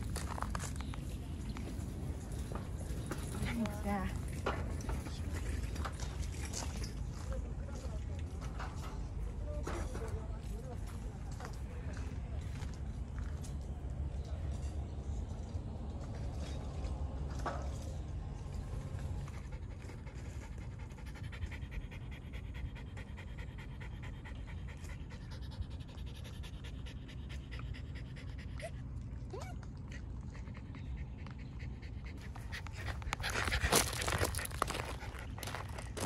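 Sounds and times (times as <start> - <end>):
dog panting: 2.2 - 6.8, 19.0 - 36.0.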